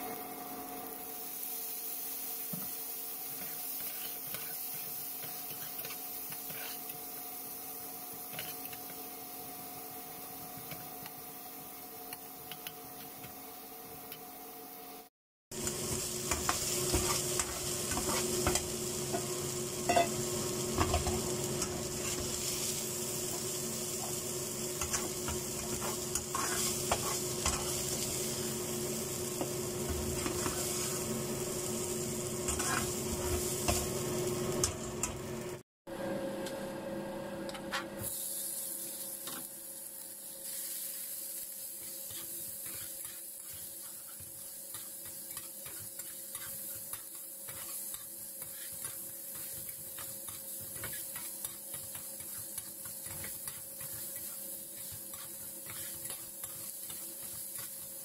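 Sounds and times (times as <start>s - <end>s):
food sizzling in oil: 0.0s - 14.0s, 15.5s - 35.6s, 38.0s - 58.0s
metal spatula scraping pan: 24.8s - 27.8s, 32.5s - 33.8s.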